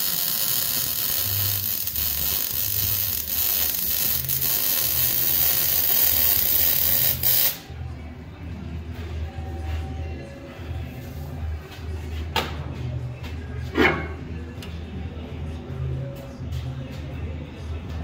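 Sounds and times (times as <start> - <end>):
arc welding crackling hiss: 0.0 - 7.6.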